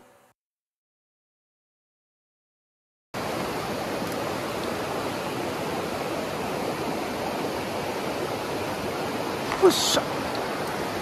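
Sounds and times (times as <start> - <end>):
mountain stream rapids rushing: 3.2 - 11.0.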